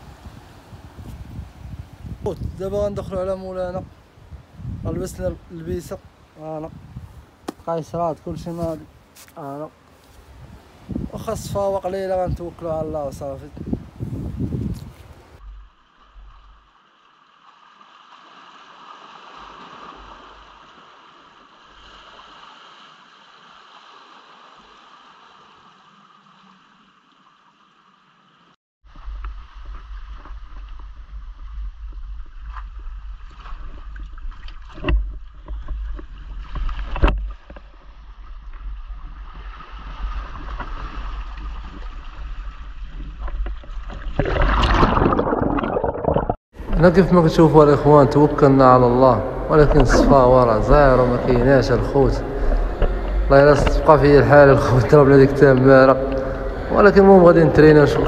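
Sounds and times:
sea water washing: 15.3s - 27.2s, 28.9s - 58.0s
low rumble: 28.9s - 34.4s, 46.2s - 58.0s.

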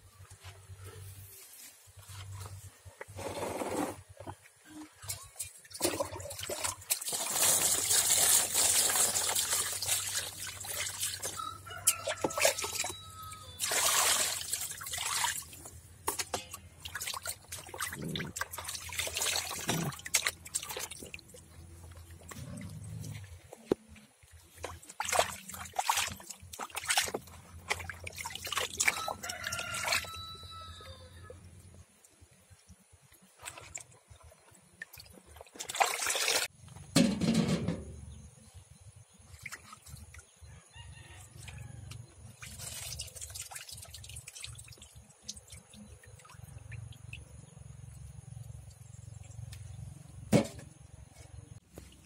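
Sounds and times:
water sloshing in a plastic basin: 4.2s - 30.9s, 32.6s - 38.3s, 39.1s - 52.0s
hands washing fish: 5.0s - 30.9s, 33.0s - 36.5s, 41.3s - 47.8s.

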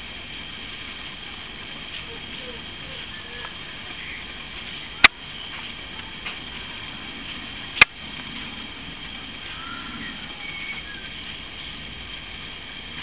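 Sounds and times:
steady outdoor hiss: 0.0s - 13.0s
faint high chirps: 9.5s - 11.3s.

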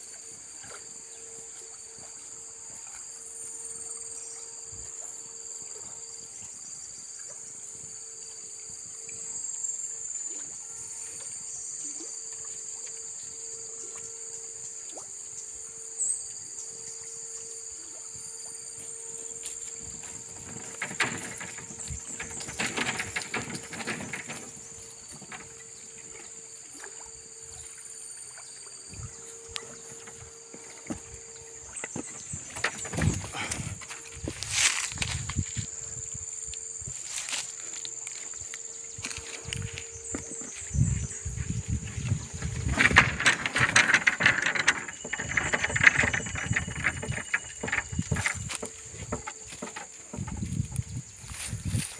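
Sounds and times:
insects droning: 0.0s - 51.9s
footsteps in dry leaves: 34.3s - 35.7s, 36.9s - 38.4s, 51.2s - 51.9s.

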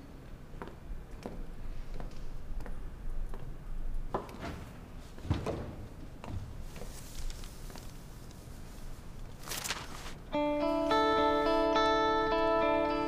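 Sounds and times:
plucked guitar-like music: 10.3s - 13.0s.

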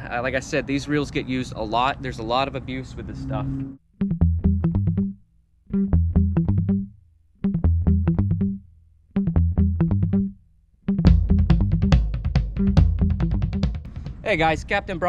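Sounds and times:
bass-heavy riff: 3.2s - 14.0s.

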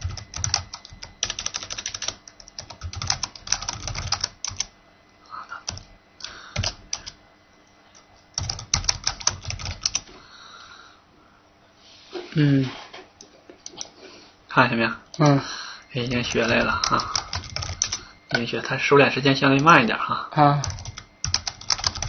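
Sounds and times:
typing on computer keyboard: 0.0s - 4.7s, 5.7s - 7.2s, 8.4s - 10.1s, 16.3s - 18.0s, 20.6s - 22.0s.

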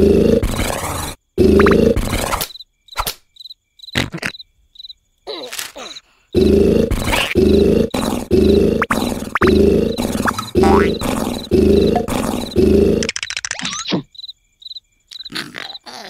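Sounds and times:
harsh grunting snores: 0.0s - 2.2s, 6.4s - 13.1s
crickets chirping: 0.0s - 16.0s
small clicks: 13.0s - 13.8s.

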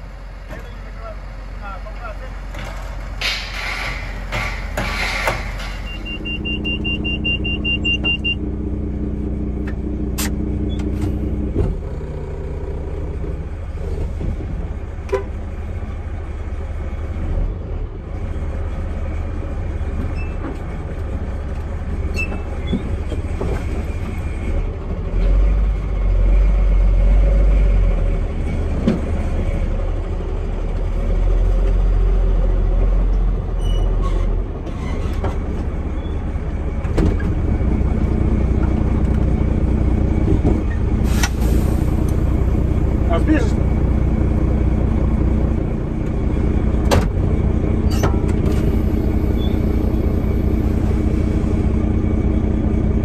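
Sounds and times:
truck diesel engine rumbling: 0.0s - 53.0s
high beeps: 5.8s - 8.4s.

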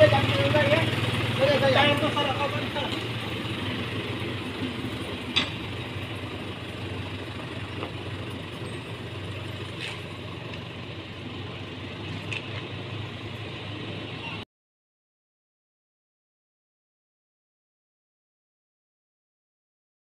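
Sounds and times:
tractor engine running: 0.0s - 14.4s.

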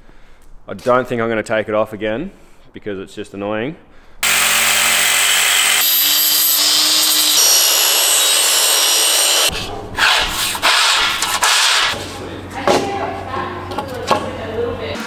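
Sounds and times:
mitre saw cutting aluminium: 4.2s - 9.6s
reciprocating saw cutting metal: 4.2s - 12.0s.

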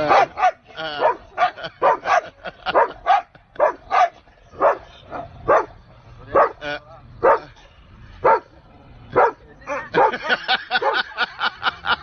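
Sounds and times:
dog barking: 0.0s - 6.6s, 7.2s - 7.5s, 8.2s - 8.5s, 9.2s - 11.1s.

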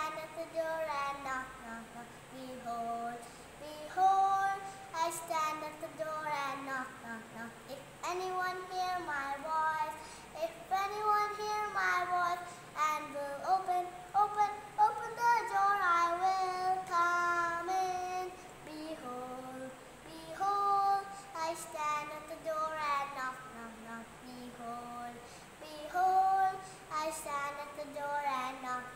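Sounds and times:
girl singing unaccompanied: 0.0s - 28.9s.

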